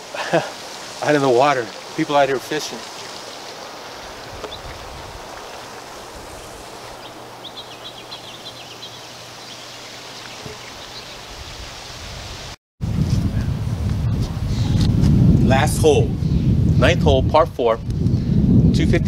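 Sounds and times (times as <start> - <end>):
outdoor ambient hiss: 0.0 - 12.6
wind rumble on microphone: 4.1 - 5.4, 10.4 - 19.0.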